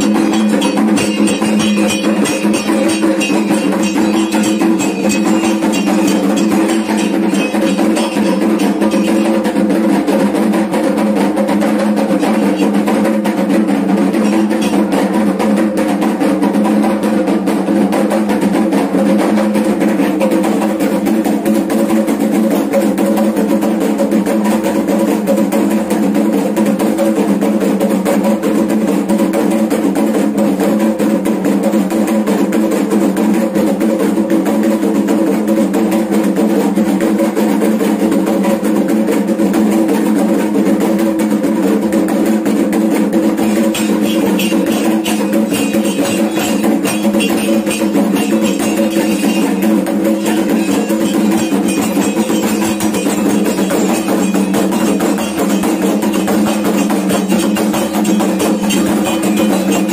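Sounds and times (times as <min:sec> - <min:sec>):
drums beaten in fast rhythm: 0:00.0 - 0:59.9.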